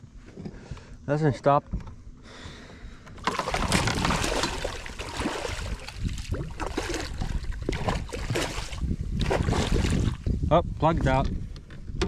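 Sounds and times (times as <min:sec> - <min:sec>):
fish splashing in net: 0:03.2 - 0:10.1.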